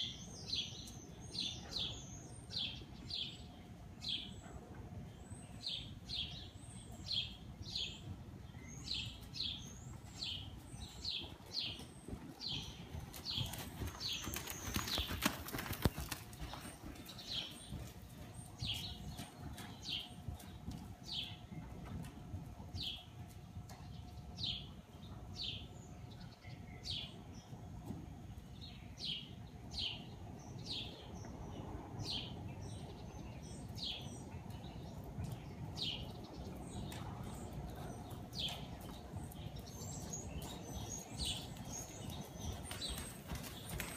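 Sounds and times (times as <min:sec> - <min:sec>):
horse hoofbeats in soft footing: 0:10.2 - 0:22.2.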